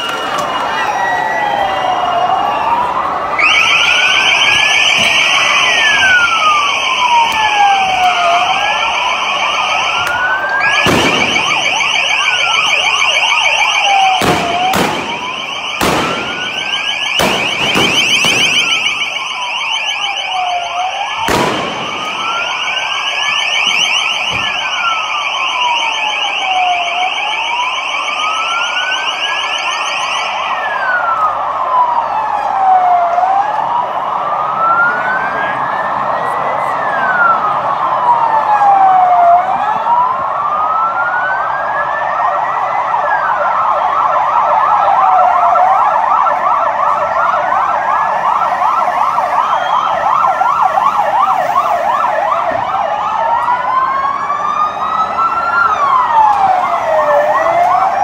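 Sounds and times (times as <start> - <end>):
siren slow wail: 0.0 - 58.0
rapidly warbling siren tone: 3.4 - 31.0
sharp bangs: 10.0 - 12.6, 14.0 - 19.2, 21.2 - 24.7.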